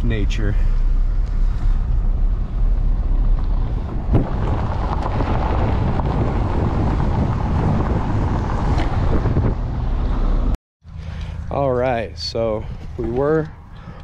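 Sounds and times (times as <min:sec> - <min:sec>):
vehicle rumble on dirt road: 0:00.0 - 0:14.0
wind buffeting microphone: 0:01.1 - 0:10.6.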